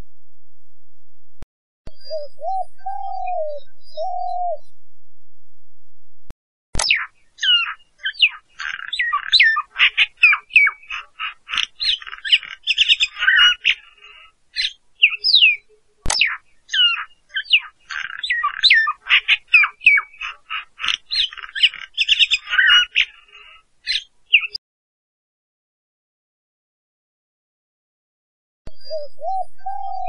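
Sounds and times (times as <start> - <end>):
bird chirps and squawks: 6.8 - 24.6.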